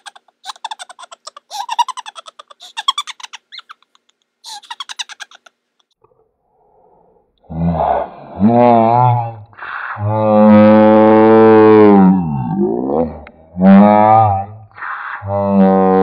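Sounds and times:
woman giggling high-pitched: 0.0s - 5.5s.

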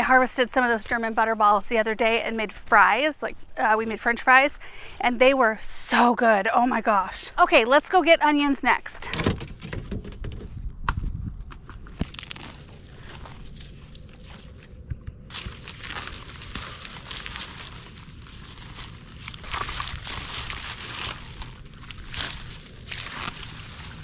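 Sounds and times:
dry plant stems rustling and crackling: 0.0s - 5.0s, 11.4s - 24.0s
footsteps on dry ground: 11.0s - 24.0s.

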